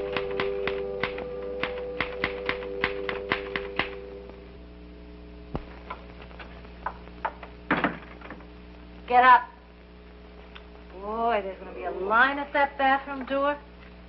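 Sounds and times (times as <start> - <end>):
typewriter keys clacking: 0.0 - 4.0
held music chord: 0.0 - 4.4.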